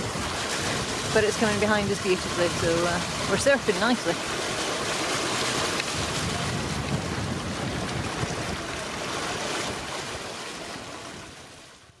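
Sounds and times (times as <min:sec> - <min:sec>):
breaking water: 0:00.0 - 0:11.1
wind rushing: 0:05.5 - 0:09.0.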